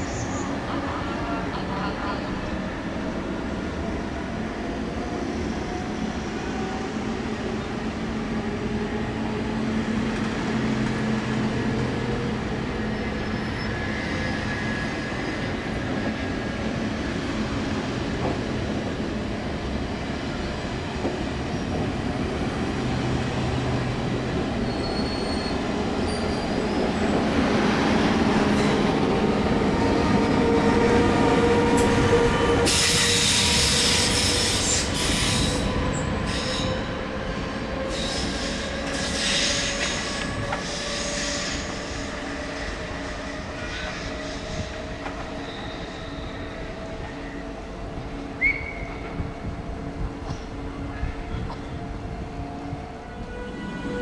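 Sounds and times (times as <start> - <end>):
train wheels rumbling on rail: 0.0 - 54.0
high wheel squeals: 24.6 - 27.0, 45.4 - 46.6.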